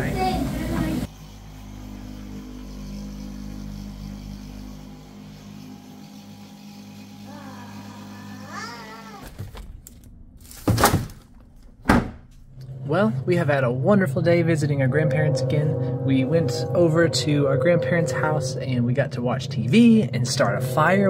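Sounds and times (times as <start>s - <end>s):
electric massager humming: 0.0s - 9.3s
child crying: 7.3s - 9.4s.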